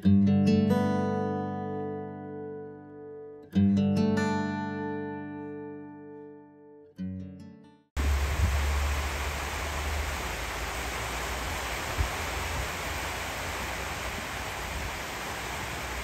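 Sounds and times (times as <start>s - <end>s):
low rumble: 8.0s - 12.6s
rushing outdoor ambience: 8.0s - 16.0s.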